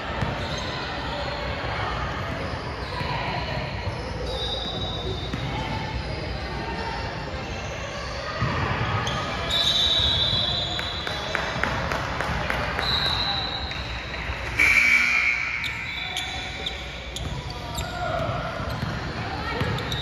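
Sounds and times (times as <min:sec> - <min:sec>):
high shoe squeaks: 0:03.8 - 0:06.2, 0:14.6 - 0:18.9, 0:19.5 - 0:20.0
basketball bouncing on court: 0:16.7 - 0:20.0.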